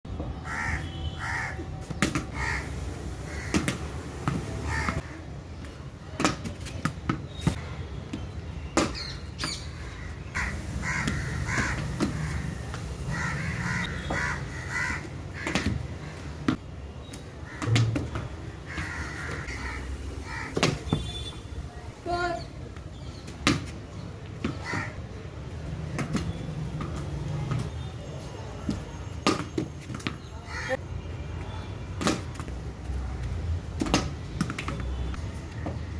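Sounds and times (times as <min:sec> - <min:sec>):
ball striking walls: 0:17.6 - 0:18.4.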